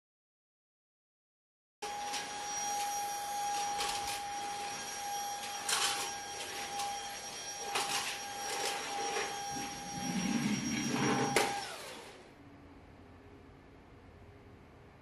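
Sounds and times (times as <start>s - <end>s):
stick vacuum cleaner whining: 1.8s - 12.3s
vacuum head scuffing floor: 1.9s - 12.0s.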